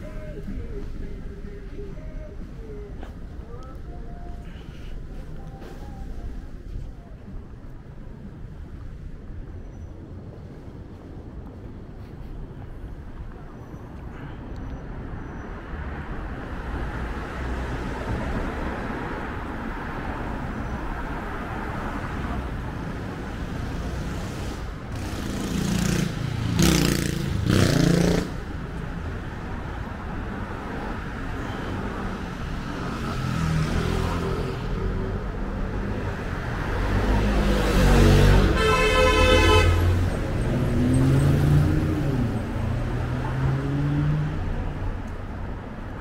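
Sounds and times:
faint voices of passers-by: 0.0 - 38.6, 39.6 - 46.0
cars passing: 0.0 - 46.0
car horn: 38.2 - 40.1.

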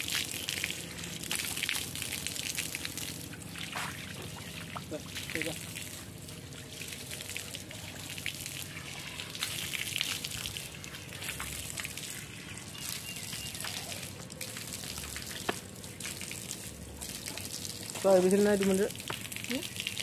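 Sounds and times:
tap water splashing on concrete: 12.8 - 20.0.

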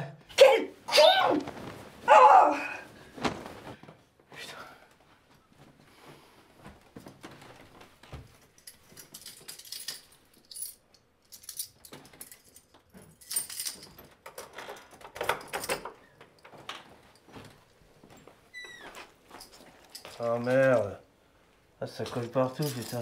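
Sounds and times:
keys jangling at a door lock: 8.2 - 17.4, 18.6 - 21.0, 22.1 - 23.0.

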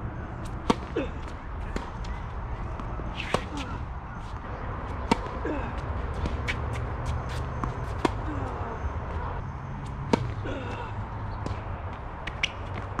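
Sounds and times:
tennis ball strikes: 0.5 - 5.4, 6.2 - 8.3, 10.0 - 10.4.

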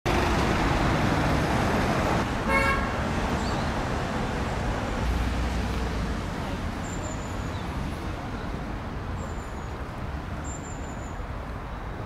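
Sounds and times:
road traffic noise: 0.0 - 12.0
vehicle horn toot: 2.5 - 3.0.

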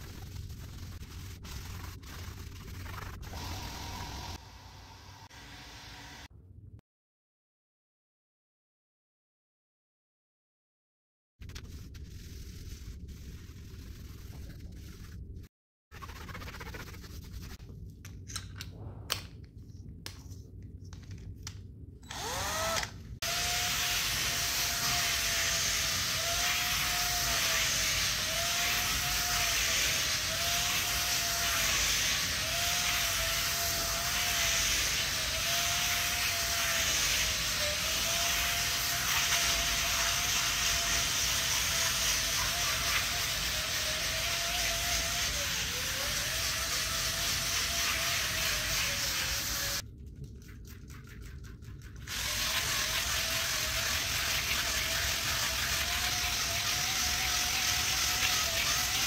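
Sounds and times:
bristles scrubbing: 0.0 - 3.9, 16.0 - 17.6, 23.7 - 49.8
hand scrubbing and scraping: 0.0 - 4.4, 11.4 - 17.8, 23.4 - 49.8, 50.6 - 59.0
cordless screwdriver motor whining: 22.0 - 23.4.

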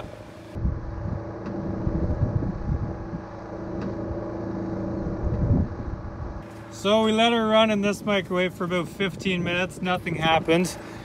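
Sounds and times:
wind buffeting microphone: 0.0 - 6.4
generator engine hum: 0.0 - 11.0.

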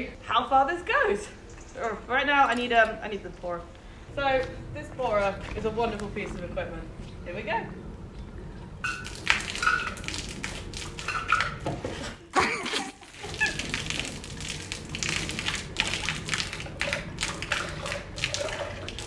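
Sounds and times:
liquid splattering on paving and tin: 8.8 - 11.6, 12.6 - 19.0.

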